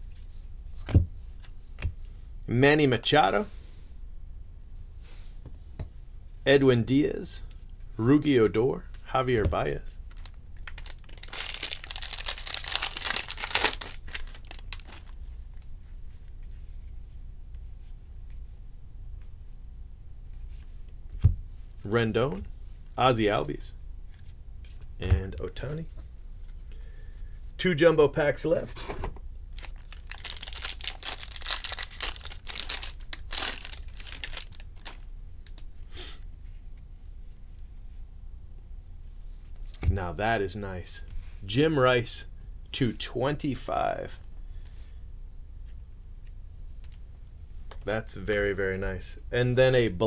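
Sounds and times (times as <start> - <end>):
faint rustling of cards: 8.8 - 18.6, 29.6 - 38.1
wrapper tearing and crinkling: 10.1 - 15.2, 29.6 - 35.6.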